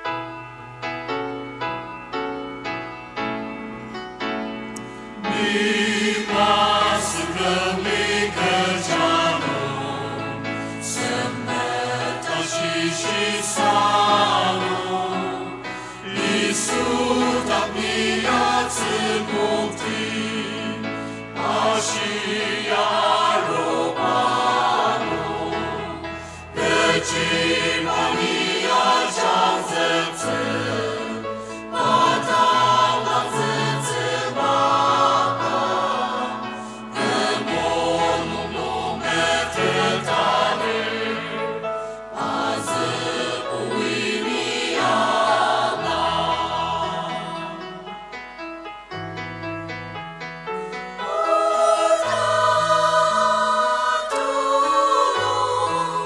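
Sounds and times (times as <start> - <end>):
singers breathing: 4.8 - 5.2, 10.6 - 10.8, 15.7 - 16.2, 20.9 - 21.4, 26.1 - 26.6, 31.3 - 31.7, 36.5 - 36.9, 41.7 - 42.1
mixed choir singing: 4.8 - 48.0, 50.9 - 56.0.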